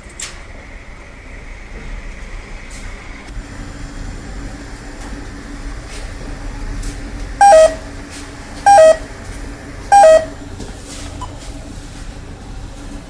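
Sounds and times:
keypad two-note beeps: 7.4 - 7.8, 8.7 - 9.0, 9.9 - 10.4.

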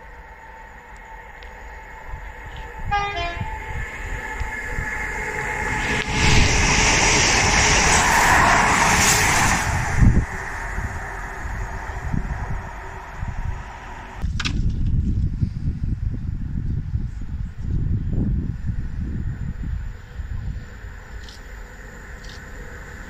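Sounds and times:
train wheels and engine rushing past: 0.0 - 14.2
train horn blast: 2.5 - 6.1.

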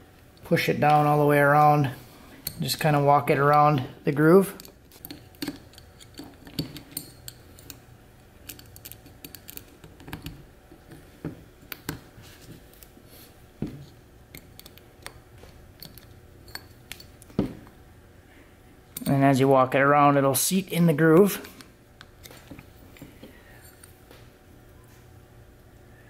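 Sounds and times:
lock ring scraping and clicking: 4.5 - 7.8, 8.4 - 11.1, 14.3 - 17.4.

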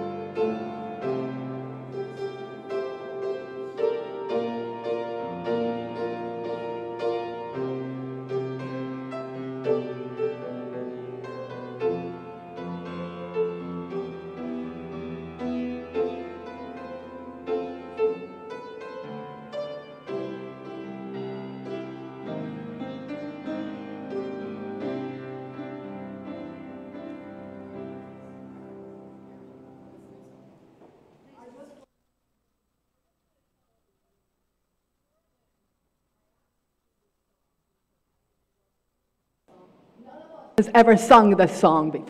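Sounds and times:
slow piano chords: 0.0 - 31.2.

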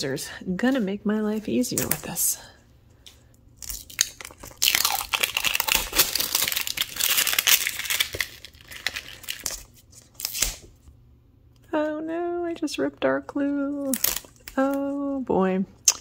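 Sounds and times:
paper wrapper crinkling and tearing: 3.6 - 10.7, 13.8 - 14.8.

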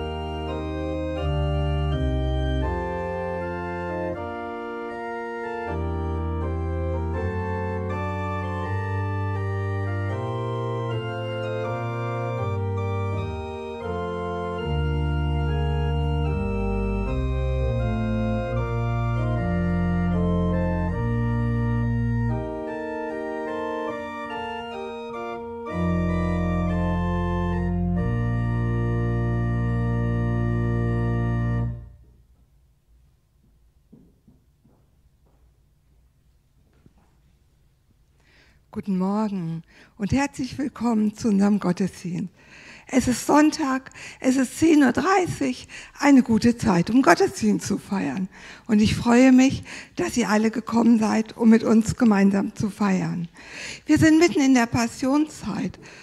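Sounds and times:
pipe organ chords: 0.0 - 33.4.

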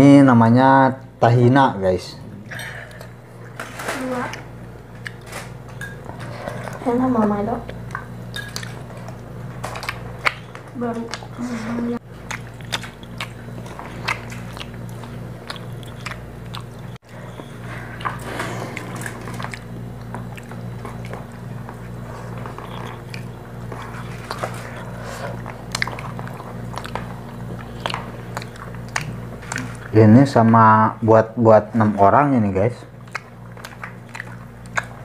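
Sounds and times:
steady low hum: 0.0 - 35.0
person chewing and biting: 4.9 - 6.8, 7.7 - 11.3, 12.0 - 29.9, 32.9 - 35.0.

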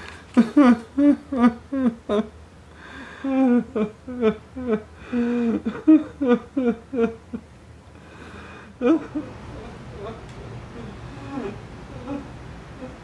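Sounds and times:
man sobbing in pain: 0.4 - 2.3, 3.2 - 7.4, 8.8 - 10.2.

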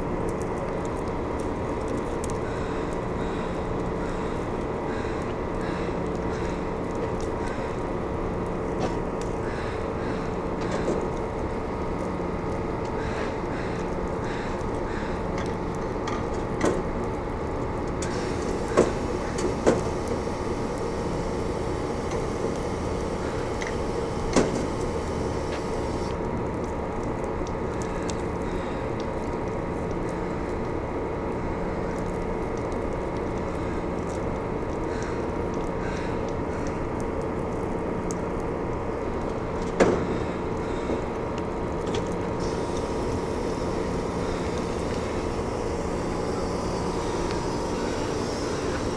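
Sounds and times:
mechanical drone: 0.0 - 26.8, 39.2 - 48.9.

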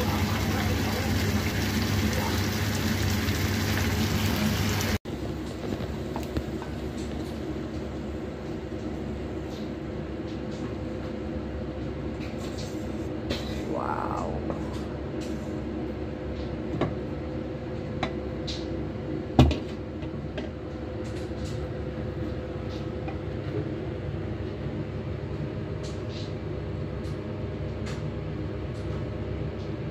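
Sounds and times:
steady hum: 12.6 - 16.3.

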